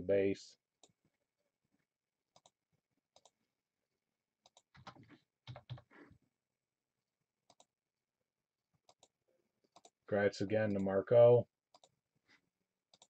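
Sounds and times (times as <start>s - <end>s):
computer mouse clicks: 2.4s - 3.4s, 4.4s - 5.9s, 7.5s - 7.7s, 8.8s - 9.1s, 9.7s - 10.0s, 11.7s - 12.0s.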